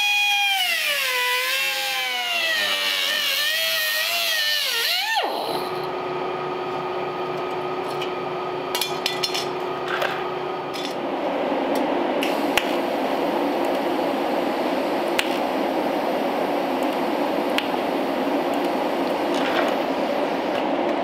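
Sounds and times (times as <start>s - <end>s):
electric welding arc: 0.0s - 5.2s.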